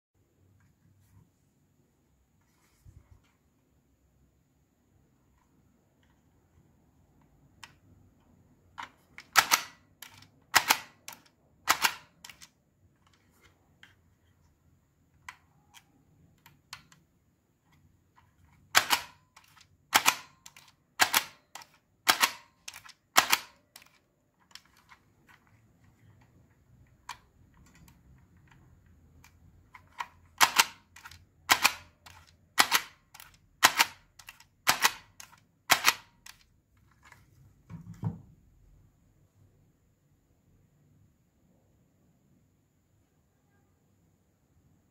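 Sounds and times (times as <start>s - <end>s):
price labeling gun clacking: 8.8s - 12.5s, 18.7s - 25.0s, 29.8s - 36.4s.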